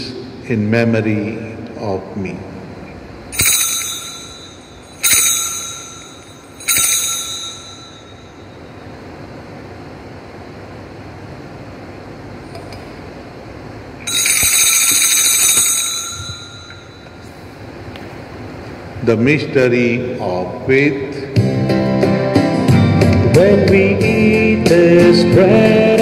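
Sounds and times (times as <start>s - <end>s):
altar bells ringing: 3.4s - 8.9s, 14.0s - 17.6s.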